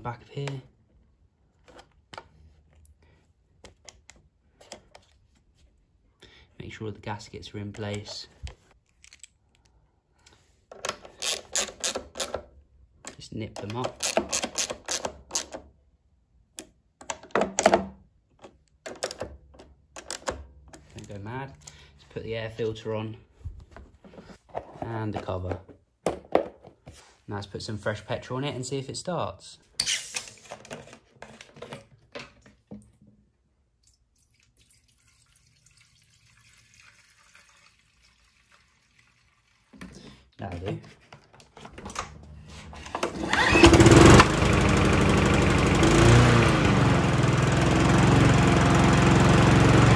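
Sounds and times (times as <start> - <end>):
fuel trickling into tank: 33.8 - 40.3.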